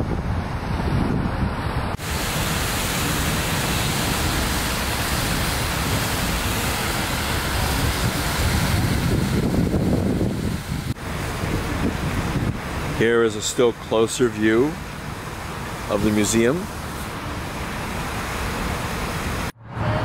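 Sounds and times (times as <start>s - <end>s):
wind on microphone: 0.0s - 13.1s
street traffic: 0.0s - 20.0s
fountain water jets splashing: 2.0s - 19.5s.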